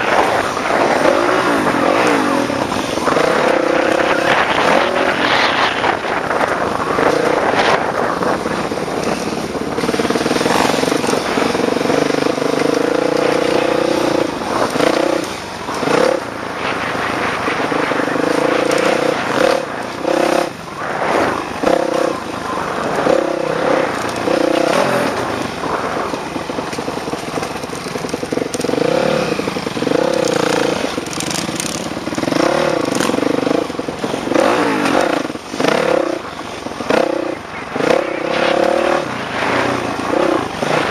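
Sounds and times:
wind rushing: 0:00.0 - 0:26.6
dirt bike engine revving: 0:00.0 - 0:40.9.

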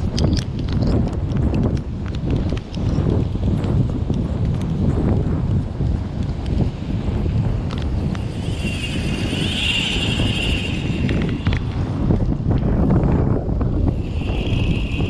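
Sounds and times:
strong wind buffeting microphone: 0:00.0 - 0:15.0.

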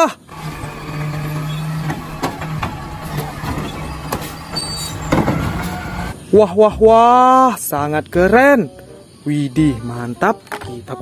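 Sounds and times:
garbage truck engine hum: 0:00.2 - 0:06.3
trash cart knocks and clunks: 0:00.4 - 0:06.1.

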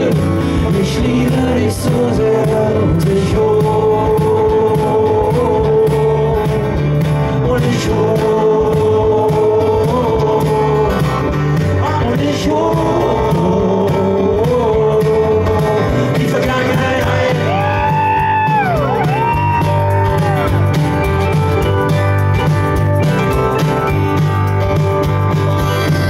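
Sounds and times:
man singing long notes: 0:00.0 - 0:20.7
live band playing: 0:00.0 - 0:26.0.

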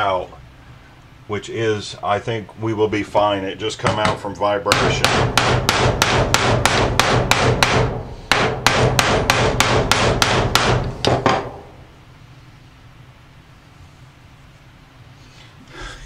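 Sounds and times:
hammer beating on metal: 0:03.8 - 0:11.8.

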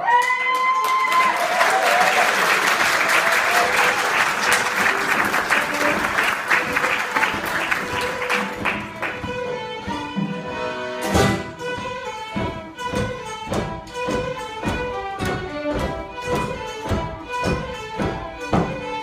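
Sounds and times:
audience applauding: 0:00.0 - 0:09.5
held instrument notes: 0:03.6 - 0:19.0.

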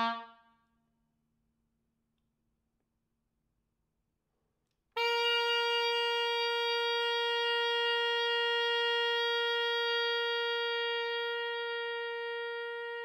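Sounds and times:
oboe holding a long note: 0:00.0 - 0:00.5, 0:05.0 - 0:13.0.

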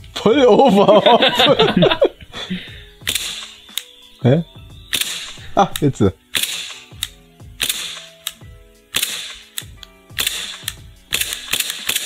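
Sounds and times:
airsoft pistol shots: 0:03.0 - 0:03.6, 0:04.9 - 0:08.3, 0:08.9 - 0:09.6, 0:10.2 - 0:12.0.

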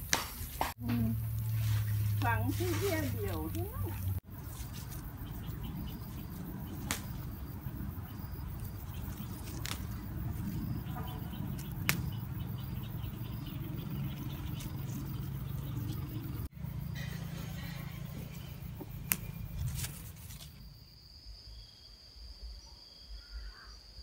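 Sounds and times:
steady low hum: 0:00.8 - 0:20.4
chilli stems snapping: 0:06.7 - 0:07.6, 0:08.5 - 0:12.5, 0:18.9 - 0:20.6.

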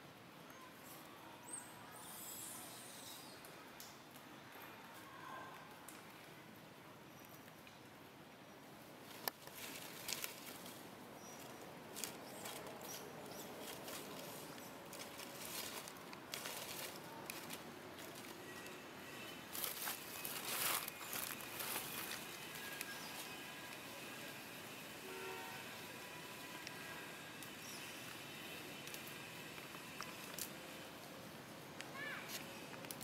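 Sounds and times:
dry leaves rustling: 0:09.0 - 0:24.4, 0:26.4 - 0:31.1.

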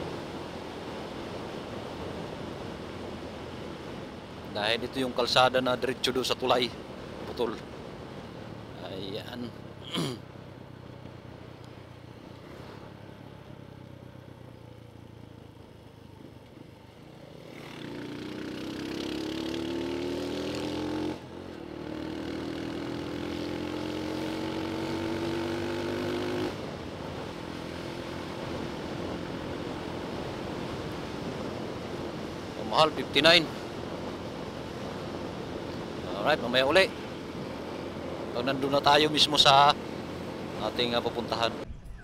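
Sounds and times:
motorcycle engine: 0:09.6 - 0:32.5.

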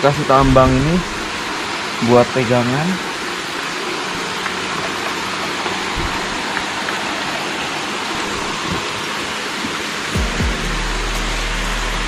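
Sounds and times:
waterfall rushing: 0:00.0 - 0:10.4
faint low bumps: 0:00.3 - 0:01.8, 0:05.8 - 0:06.7.

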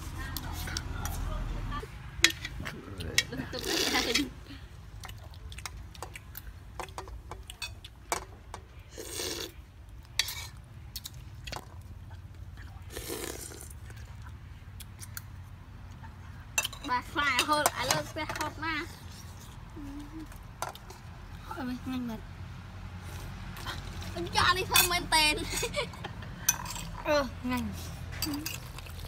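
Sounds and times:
spoons clinking on wok and plates: 0:16.6 - 0:18.5.

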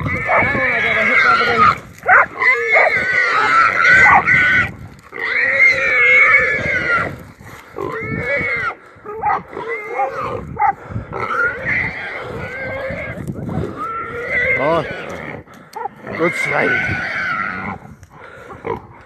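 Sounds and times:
hog squealing: 0:00.0 - 0:07.1.

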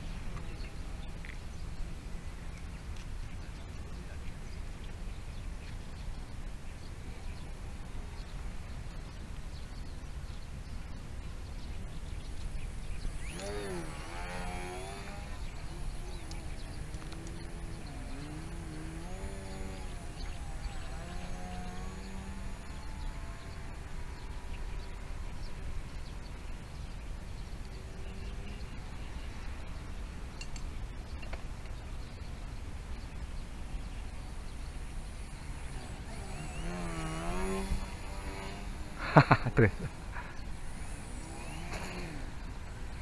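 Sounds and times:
model plane motor whining: 0:12.4 - 0:25.0, 0:34.5 - 0:39.3, 0:40.2 - 0:42.9.

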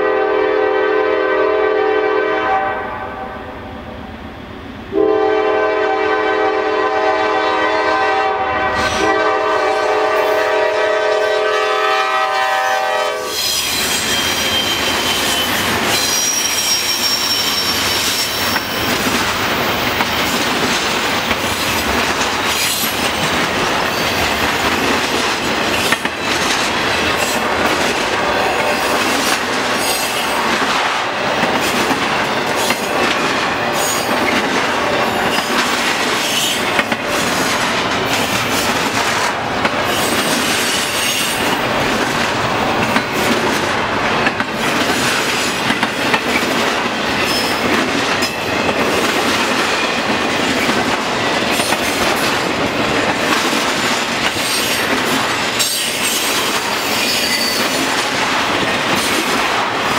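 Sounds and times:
locomotive horn blasts: 0:00.0 - 0:03.5, 0:04.9 - 0:13.6
train rumble: 0:02.1 - 0:59.9
thin high squeal: 0:13.4 - 0:18.7
wheels clacking over rail joints: 0:17.4 - 0:59.9.

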